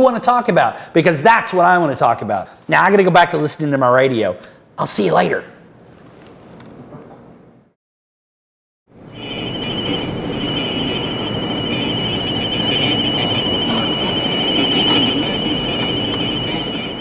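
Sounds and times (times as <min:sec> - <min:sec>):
high whistle: 0:09.0 - 0:17.0
radio static hiss: 0:09.0 - 0:17.0.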